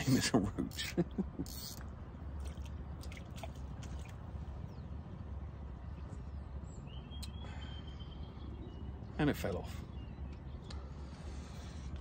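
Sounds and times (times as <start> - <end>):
fishing reel clicks: 1.4 - 1.8.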